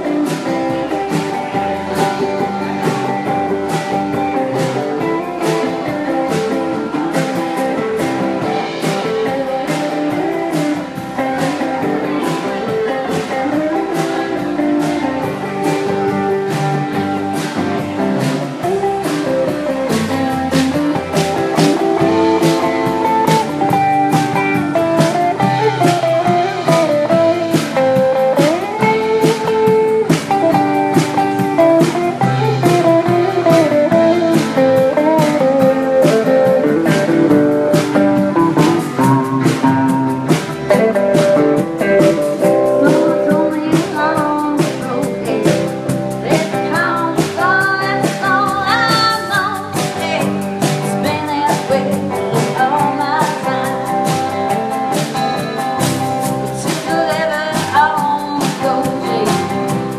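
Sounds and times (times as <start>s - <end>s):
drum kit beat: 0.0s - 59.9s
electric guitar lead: 0.0s - 59.9s
person singing: 18.2s - 54.7s, 56.5s - 59.9s.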